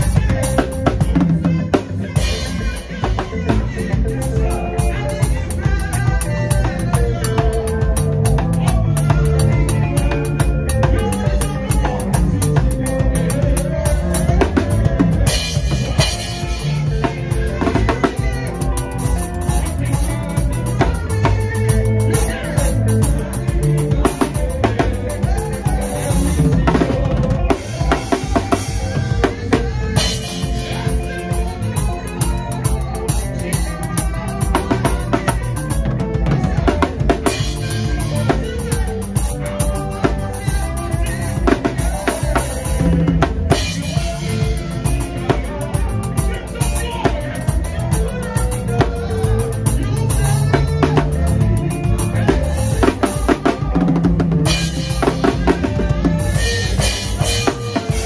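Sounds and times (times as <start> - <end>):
bass line: 0.0 - 58.0
drum kit played fast: 0.0 - 58.0.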